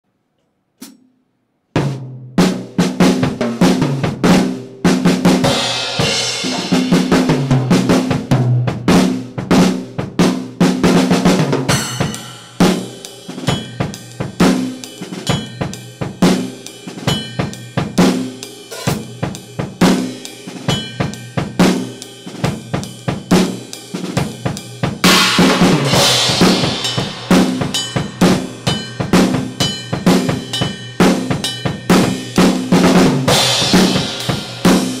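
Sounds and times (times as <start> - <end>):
rock drum solo: 1.8 - 35.0
crash cymbals: 11.7 - 32.7.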